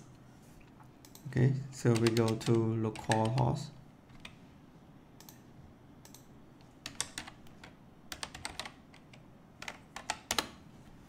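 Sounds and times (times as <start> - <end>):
computer keyboard typing: 1.0 - 4.4, 6.0 - 10.6.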